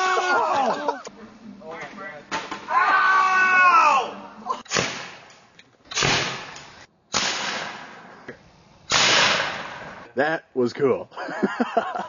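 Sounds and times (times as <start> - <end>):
person yelling: 0.0 - 1.1, 2.7 - 4.6
potato gun bangs: 5.9 - 8.0, 8.9 - 10.0.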